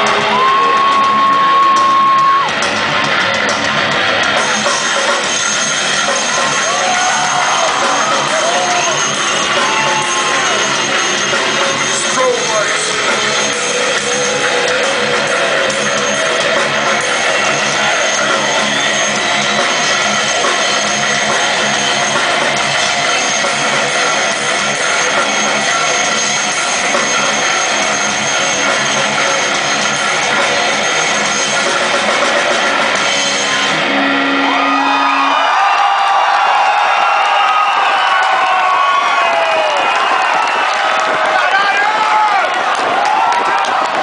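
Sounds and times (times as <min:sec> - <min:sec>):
crowd cheering and whooping: 0:00.0 - 0:44.0
heavy metal band playing: 0:00.0 - 0:44.0.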